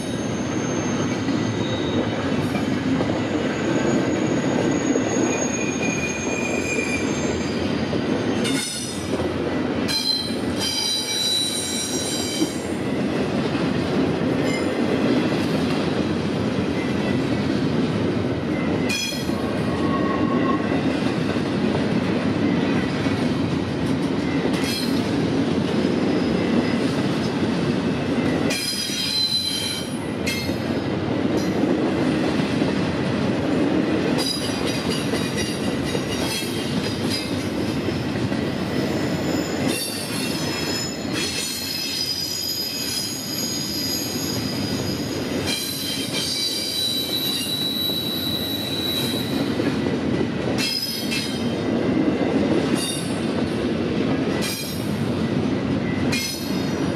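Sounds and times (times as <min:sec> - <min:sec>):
train wheels rumbling on rail: 0:00.0 - 0:56.9
high-pitched wheel squeal: 0:00.1 - 0:02.1, 0:03.7 - 0:07.6, 0:09.9 - 0:12.6, 0:38.7 - 0:49.5.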